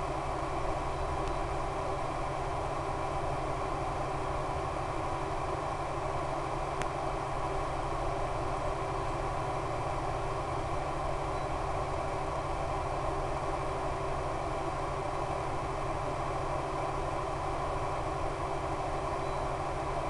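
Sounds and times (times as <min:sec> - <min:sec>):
faint tick: 0:01.2 - 0:01.4, 0:06.8 - 0:07.0.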